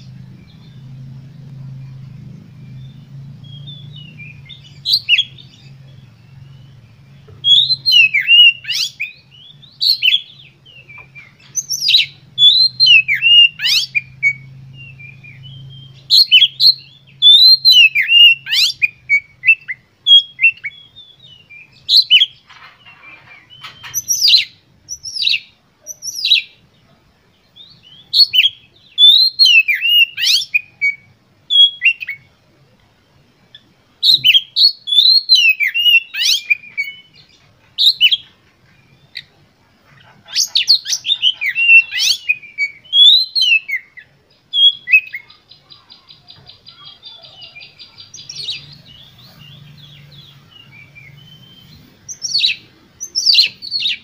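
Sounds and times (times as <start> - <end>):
bird singing loud whistles: 7.4 - 22.4, 27.8 - 32.2, 34.0 - 37.2, 37.8 - 38.2, 40.4 - 45.3, 49.9 - 54.0.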